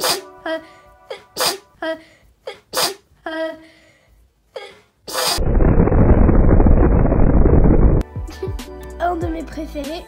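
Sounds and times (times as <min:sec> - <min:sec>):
explosion blast and rumble: 0:05.4 - 0:08.0.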